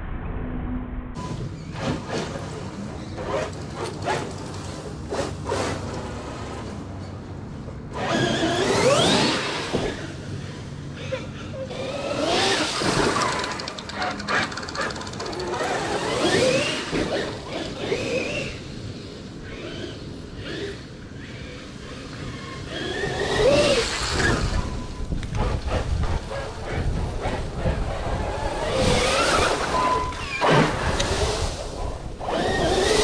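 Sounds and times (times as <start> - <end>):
electric rc truck motor whine: 7.9 - 10.6, 11.7 - 33.0.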